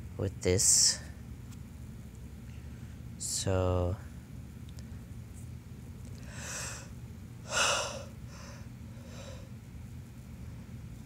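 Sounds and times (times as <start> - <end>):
man breathing and sniffing: 6.2 - 6.9, 7.5 - 9.6.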